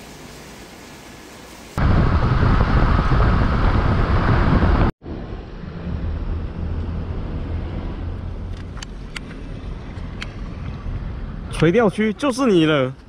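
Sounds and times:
wind noise on microphone: 0:01.8 - 0:11.5.

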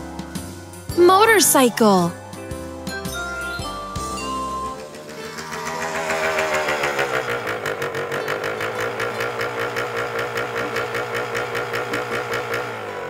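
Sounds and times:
motorcycle engine idling: 0:04.7 - 0:13.0.

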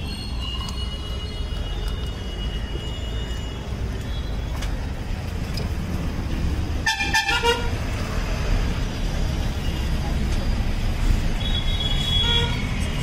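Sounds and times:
street traffic rumble: 0:00.0 - 0:13.0
vehicle horn honking: 0:11.5 - 0:12.6.

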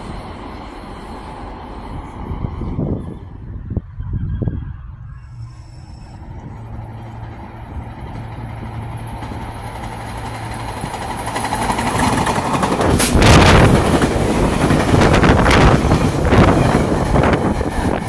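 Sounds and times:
train wheels rumbling on rails: 0:00.0 - 0:18.0
wheels clacking on track: 0:06.1 - 0:18.0.

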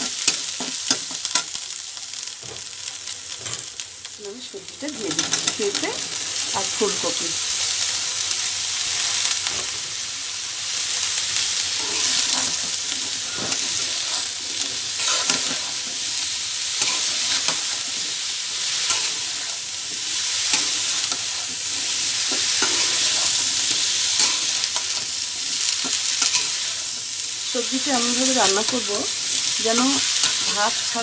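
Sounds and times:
food sizzling in hot oil: 0:00.0 - 0:31.0
metal spatula scraping a pan: 0:11.7 - 0:16.0, 0:16.8 - 0:27.0.

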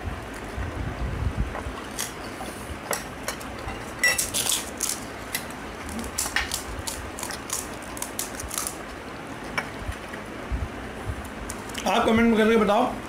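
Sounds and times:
crisp shells crackling: 0:04.2 - 0:08.9.

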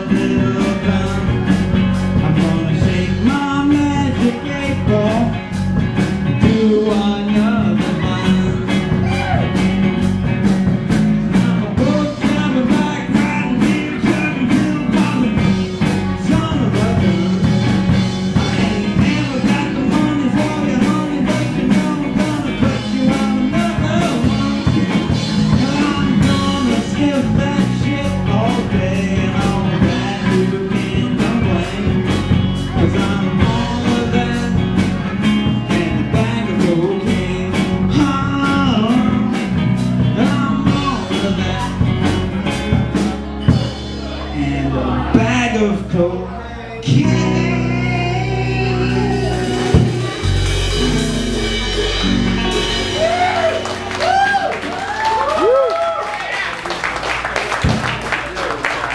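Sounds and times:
drum kit steady beat: 0:00.0 - 0:44.3, 0:47.1 - 0:55.6
live rock band playing blues-rock: 0:00.0 - 0:46.2, 0:46.8 - 0:55.6.

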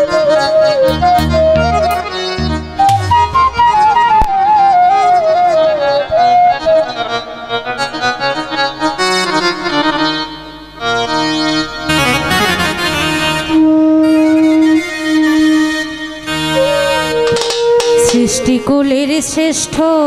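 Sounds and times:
bamboo flute melody: 0:00.0 - 0:08.6, 0:11.9 - 0:18.7
harmonium chords: 0:00.0 - 0:20.0.

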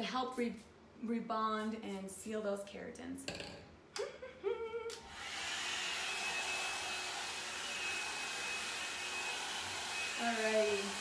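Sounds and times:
hot-air brush dryer blowing air: 0:04.9 - 0:11.0.

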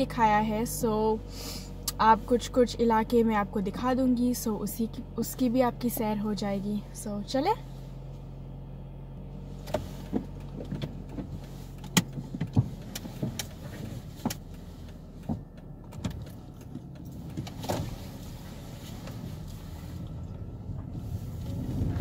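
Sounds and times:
car engine idling: 0:00.0 - 0:22.0
car pulling away: 0:00.0 - 0:22.0
interior clicks and knocks: 0:09.6 - 0:18.0.

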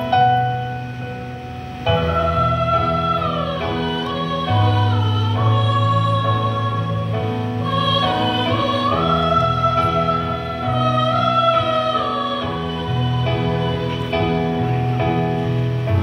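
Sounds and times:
high voice holding long note: 0:01.7 - 0:14.9
mixed choir singing: 0:01.8 - 0:15.3.

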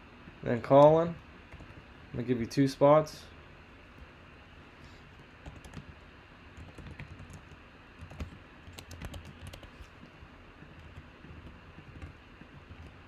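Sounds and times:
typing on computer keyboard: 0:01.5 - 0:01.8, 0:05.4 - 0:06.0, 0:06.6 - 0:09.8, 0:10.6 - 0:13.0.

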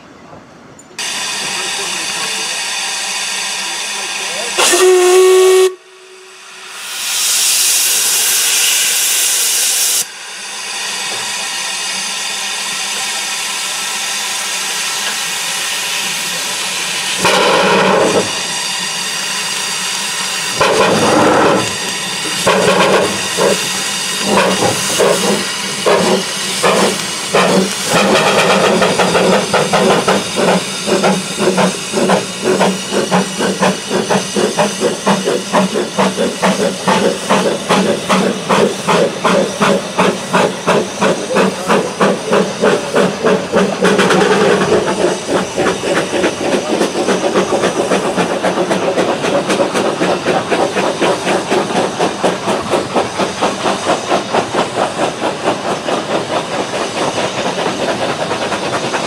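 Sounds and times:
steam locomotive whistle: 0:01.0 - 0:10.2
steam hissing: 0:01.0 - 0:59.0.

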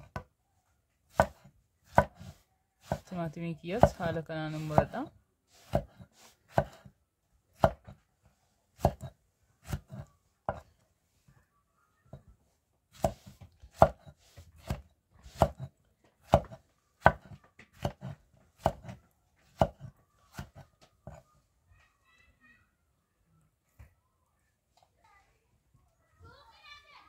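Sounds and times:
knife chopping vegetables: 0:01.1 - 0:08.0, 0:08.8 - 0:10.7, 0:12.9 - 0:21.2.

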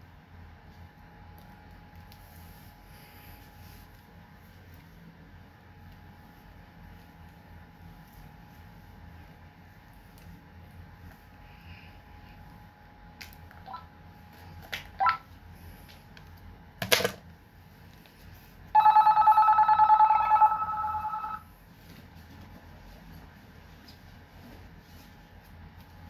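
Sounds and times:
fluttering electronic ringing tone: 0:18.8 - 0:21.5.

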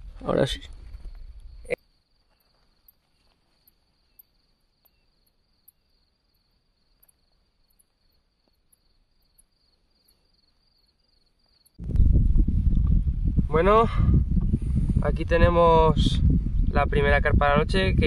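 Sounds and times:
cricket trill: 0:00.0 - 0:11.8
high insect chirps: 0:00.3 - 0:11.8
faint ticks: 0:02.2 - 0:11.8.

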